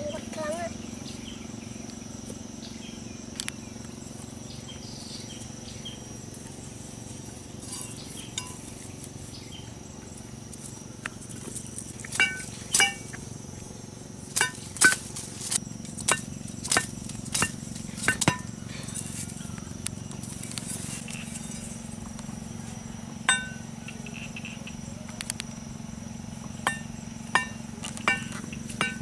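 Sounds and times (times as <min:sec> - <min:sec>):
machete knocking bamboo stake: 0:14.4 - 0:15.2, 0:16.1 - 0:18.5, 0:26.6 - 0:29.0.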